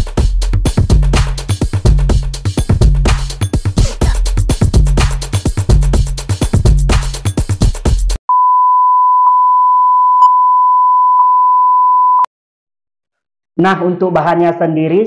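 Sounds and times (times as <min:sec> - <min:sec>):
background music with beat: 0:00.0 - 0:08.2.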